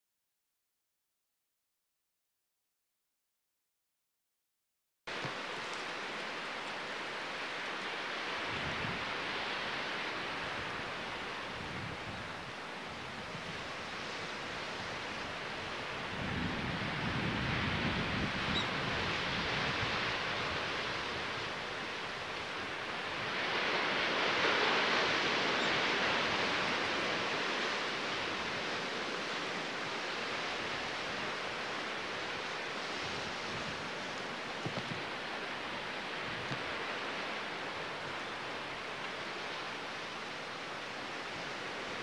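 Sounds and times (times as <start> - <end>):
sea surf washing: 5.1 - 42.0
wind buffeting microphone: 8.4 - 38.4.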